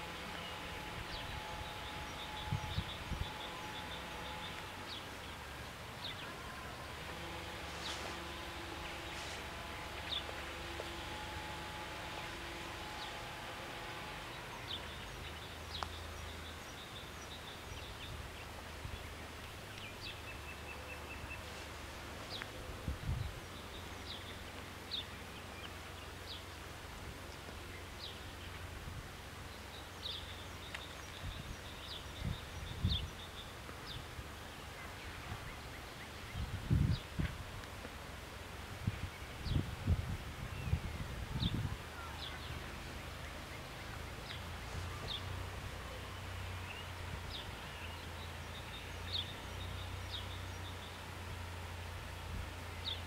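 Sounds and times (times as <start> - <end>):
low outdoor rumble: 0.0 - 53.0
small birds chirping: 0.0 - 53.0
wind buffeting microphone: 0.1 - 6.0, 22.6 - 24.2, 31.1 - 43.2.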